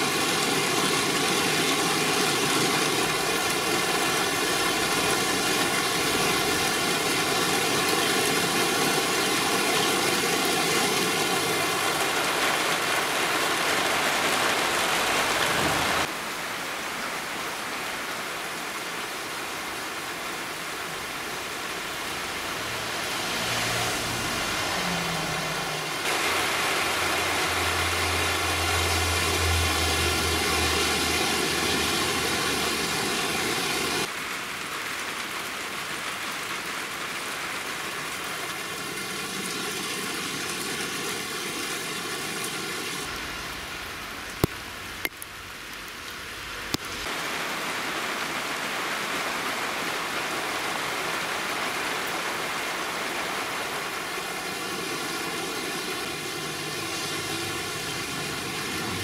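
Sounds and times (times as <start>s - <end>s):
heavy rain pouring: 0.0s - 59.0s
low engine-like hum: 26.9s - 34.0s.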